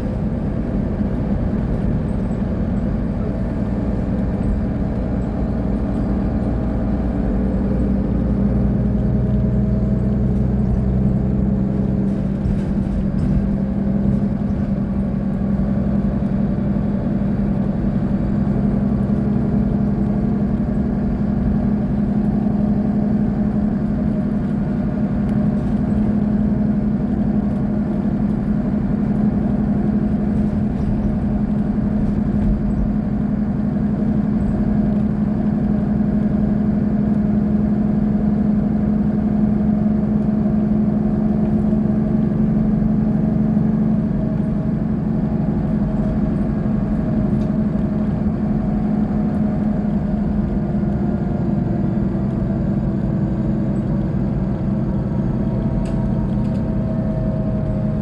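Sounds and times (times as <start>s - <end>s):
bus engine idling: 0.0s - 58.0s.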